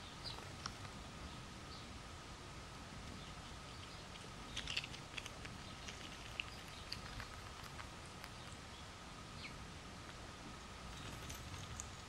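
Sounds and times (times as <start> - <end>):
faint bird chirp: 0.0 - 2.0, 3.1 - 9.6, 10.9 - 12.0
chipmunk rummaging through seeds: 3.0 - 8.8, 10.9 - 12.0.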